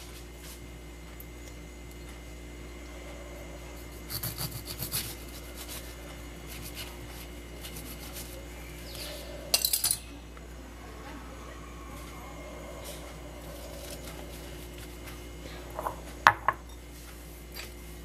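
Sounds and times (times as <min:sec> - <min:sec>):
knife sawing through lime: 0:03.9 - 0:08.4, 0:13.4 - 0:14.8
blade grating against tile: 0:04.1 - 0:05.9.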